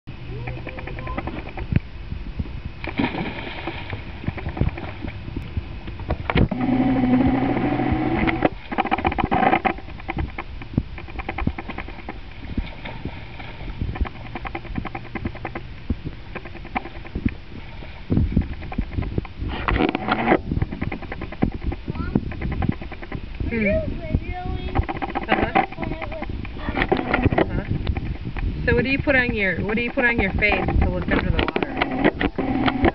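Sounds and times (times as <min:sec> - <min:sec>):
water splashing and sloshing: 0:00.1 - 0:32.9
child jumping into pool: 0:02.9 - 0:04.2.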